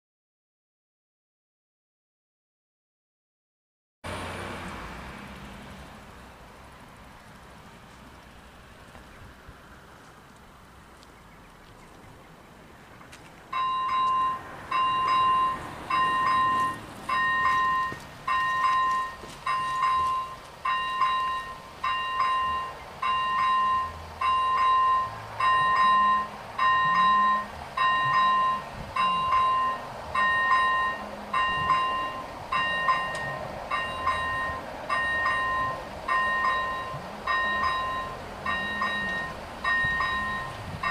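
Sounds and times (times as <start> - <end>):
level crossing warning bells: 13.5 - 40.9.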